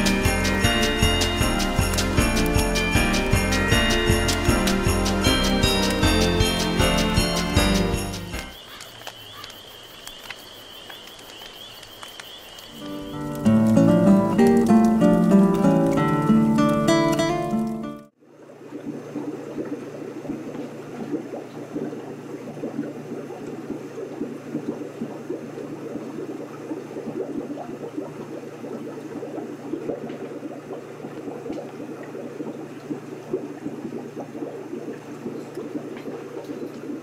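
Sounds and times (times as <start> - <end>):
aquarium water bubbling: 17.6 - 37.0.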